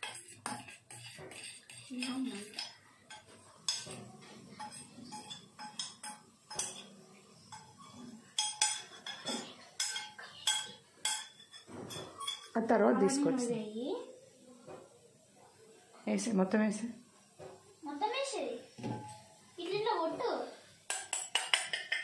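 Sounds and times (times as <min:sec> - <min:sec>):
spoon scraping metal bowl: 0:00.0 - 0:06.9, 0:07.5 - 0:12.7.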